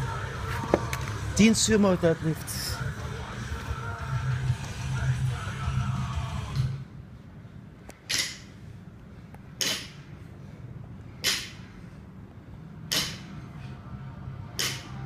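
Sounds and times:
barbell dropping on rubber floor: 8.1 - 8.5, 9.6 - 10.0, 11.2 - 11.6, 12.9 - 13.3, 14.6 - 15.0.

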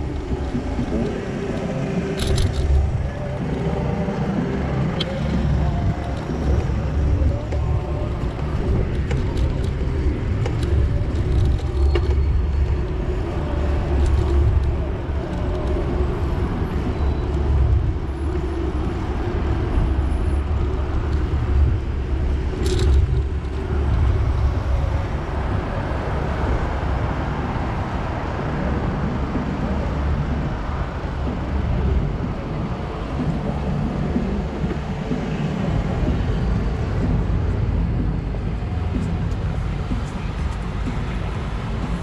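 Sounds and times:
vehicle rumble in motion: 0.0 - 42.0.

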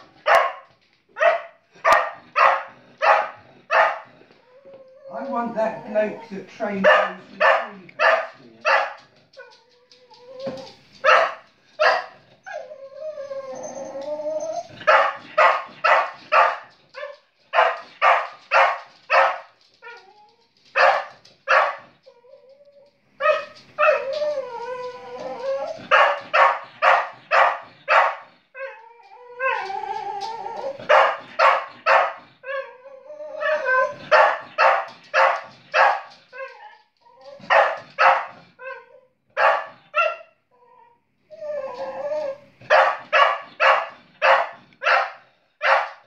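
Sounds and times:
dog howling: 12.5 - 14.8, 22.0 - 26.6, 28.6 - 31.2, 32.4 - 35.3, 40.6 - 43.0.

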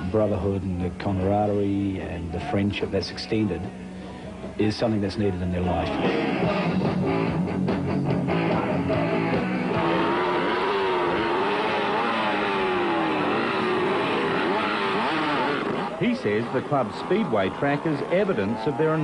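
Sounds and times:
rock music with electric guitar: 5.8 - 18.8
dirt-bike engines revving: 8.3 - 19.0.

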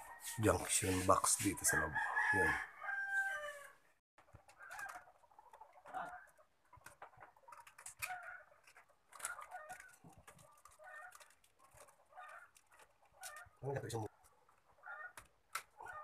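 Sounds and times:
faint chicken clucking: 0.0 - 16.0
wire clicks and rustles: 4.2 - 16.0.

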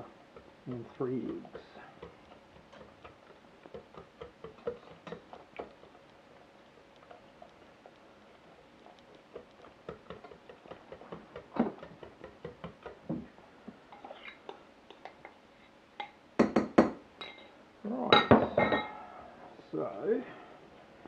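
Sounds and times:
whisk scraping metal saucepan: 0.0 - 5.8
knocks of bowl on pan: 16.0 - 17.4.

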